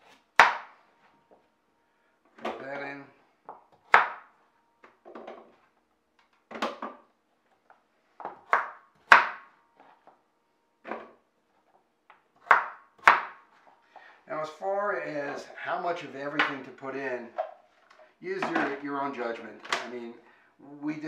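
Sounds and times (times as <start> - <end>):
knife chopping on cutting board: 0.1 - 0.7, 3.8 - 4.3, 8.2 - 9.5, 12.4 - 13.4.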